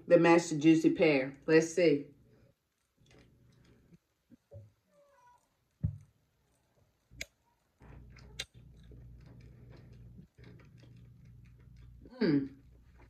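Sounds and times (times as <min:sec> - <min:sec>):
person chewing: 0:02.8 - 0:04.5, 0:06.5 - 0:13.0.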